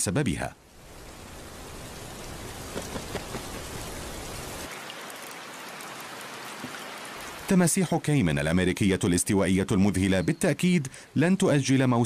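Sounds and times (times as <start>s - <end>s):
rain on leaves: 0.6s - 7.6s.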